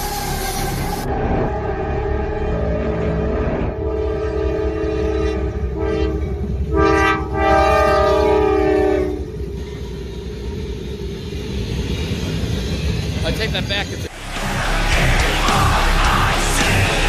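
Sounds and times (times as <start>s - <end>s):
locomotive air horn blasts: 3.7s - 9.3s.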